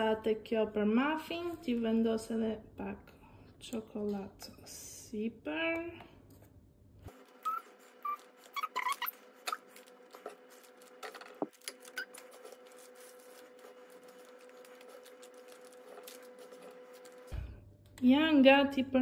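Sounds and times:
paper rustling: 7.1 - 17.5
short squeaks: 7.2 - 9.8.

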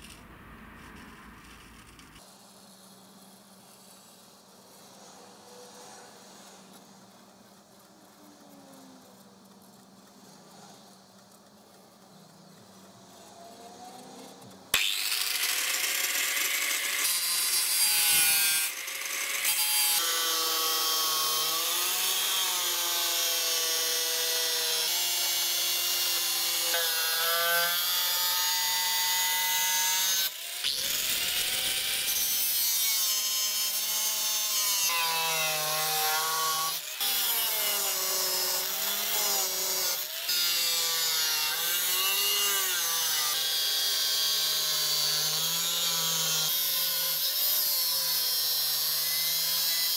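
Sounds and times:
angle grinder cutting metal: 14.7 - 49.9.

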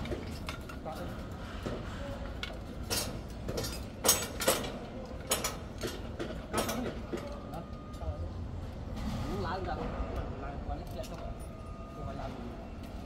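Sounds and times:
metal clanks on scaffolding: 0.0 - 7.4
low hum of site noise: 0.0 - 13.0.

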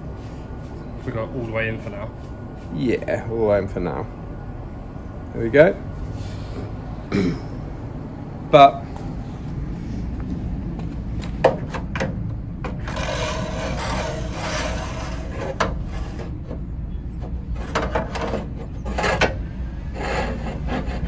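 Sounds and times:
steel rod scraping metal: 12.8 - 16.6, 17.2 - 21.0.

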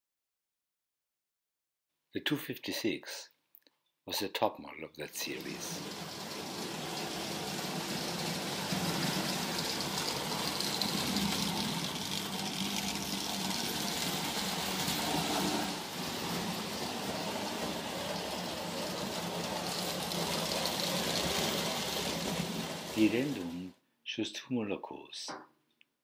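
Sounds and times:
toy train motor whirring: 5.4 - 23.5
wheels rumbling on rails: 5.4 - 23.7.

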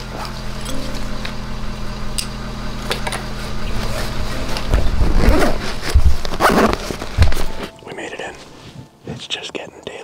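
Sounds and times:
steady low hum: 0.0 - 9.4
zipper: 5.0 - 7.0
backpack clicks and rustling: 6.2 - 7.6.

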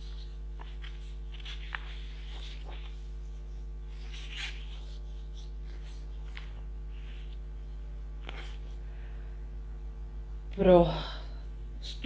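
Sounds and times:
paper pages rustling: 0.0 - 7.4, 8.2 - 8.8
steady electrical hum: 0.0 - 12.0.

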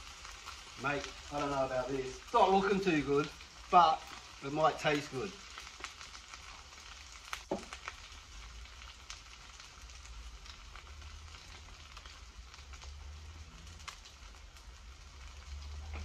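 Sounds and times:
omelette sizzling in a frying pan: 0.0 - 16.0
knock: 7.5 - 7.7.

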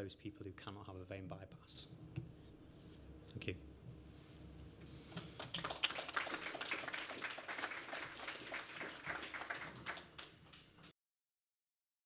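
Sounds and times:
audience applauding: 5.4 - 10.9.

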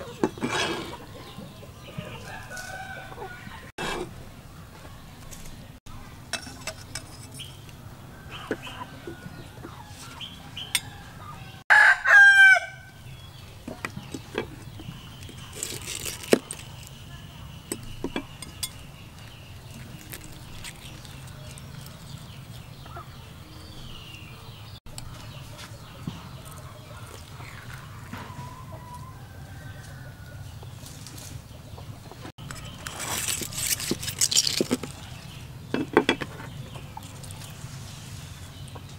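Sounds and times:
rooster crowing: 2.2 - 3.7, 10.8 - 12.9.

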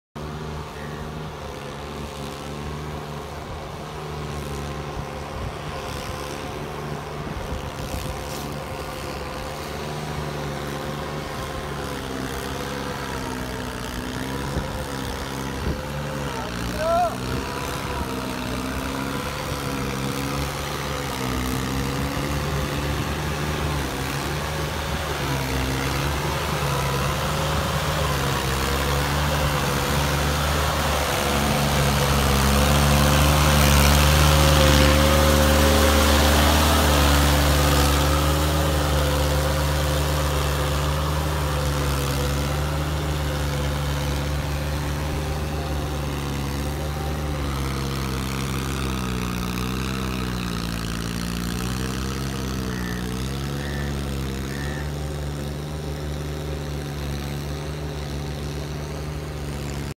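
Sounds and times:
tractor diesel engine running: 0.2 - 60.0
churning mud and water: 1.8 - 59.9.

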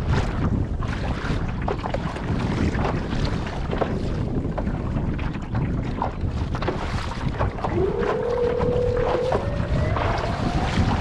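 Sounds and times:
water slapping hull: 0.0 - 11.0
wind buffeting microphone: 0.0 - 11.0
motor drive whine: 7.7 - 11.0.

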